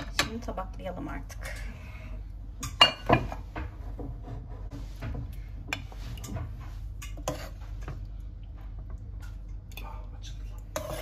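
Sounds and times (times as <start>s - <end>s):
low steady hum: 0.0s - 11.0s
spoon clinking on pot and plates: 2.6s - 3.4s.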